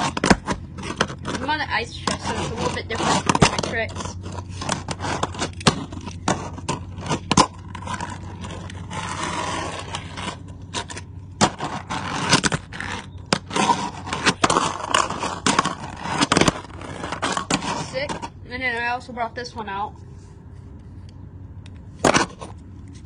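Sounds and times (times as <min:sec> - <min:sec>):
fingerboard wheels scraping and rolling: 0:00.0 - 0:18.4, 0:21.7 - 0:23.0.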